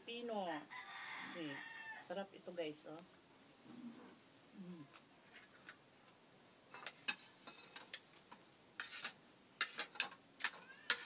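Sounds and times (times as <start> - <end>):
spoon scraping and clinking on plate: 6.7 - 8.0, 8.8 - 11.0.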